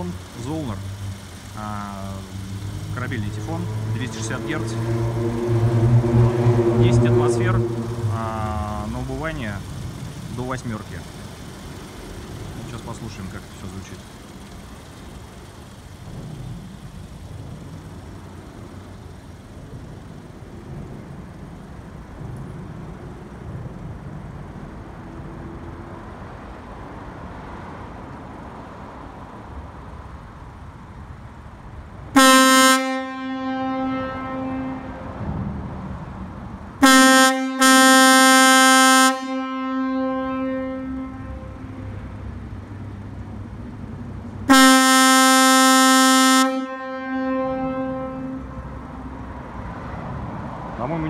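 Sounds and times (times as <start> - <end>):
air horn blasts: 1.3 - 9.4, 32.1 - 35.3, 36.8 - 42.2, 44.5 - 49.3.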